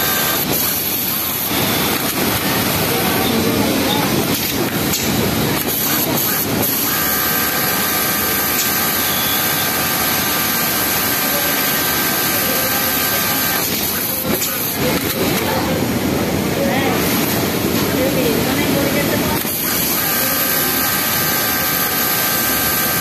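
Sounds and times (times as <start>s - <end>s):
sewing machine whining: 0.0s - 4.6s, 5.6s - 15.5s, 19.4s - 23.0s.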